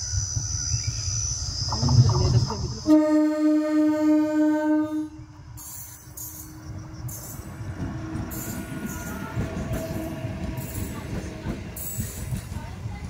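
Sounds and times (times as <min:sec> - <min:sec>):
train rumbling on track: 0:00.0 - 0:13.0
train horn blast: 0:02.8 - 0:05.3.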